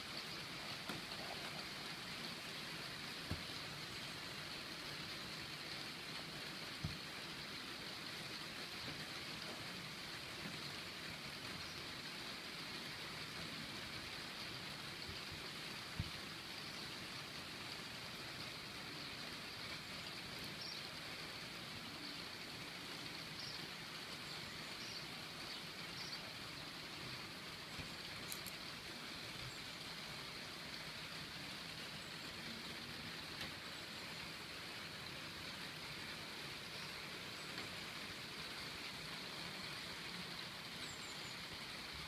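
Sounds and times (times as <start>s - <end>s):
steady background hiss: 0.0s - 42.0s.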